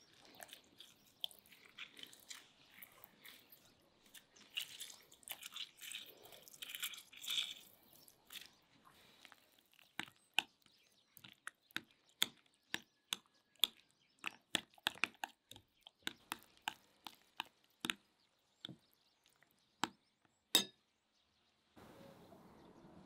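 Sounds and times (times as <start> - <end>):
mashing wet mixture: 0.0 - 20.7
utensil clicking against glass bowl: 20.6 - 20.8.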